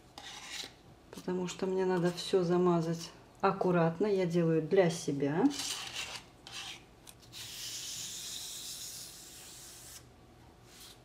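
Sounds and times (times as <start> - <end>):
palette knife scraping filler: 0.2 - 0.8, 5.5 - 10.1.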